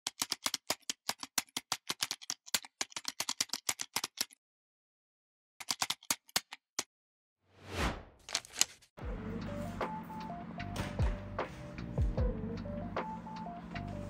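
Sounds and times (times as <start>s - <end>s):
rapid keyboard typing: 0.0s - 4.4s, 5.6s - 6.6s.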